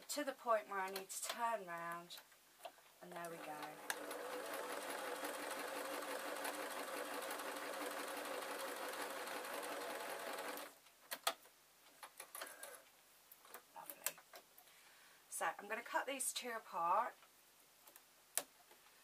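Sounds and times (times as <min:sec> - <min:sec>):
sewing machine stitching: 0:03.2 - 0:10.8.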